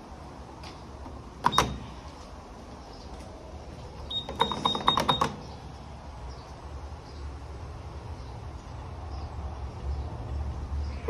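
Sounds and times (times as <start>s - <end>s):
lift button clicking: 1.4s - 1.9s.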